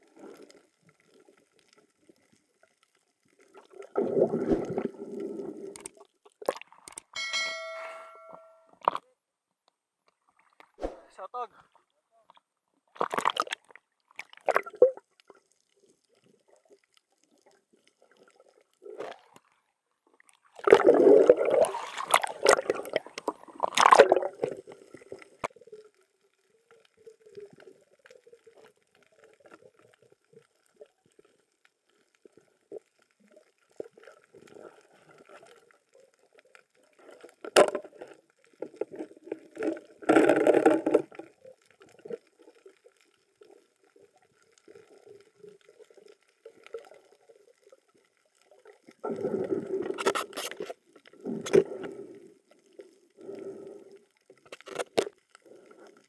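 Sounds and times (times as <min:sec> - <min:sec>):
underwater gurgling and bubbling: 0:03.3 - 0:06.0, 0:20.5 - 0:31.2, 0:32.2 - 0:54.5.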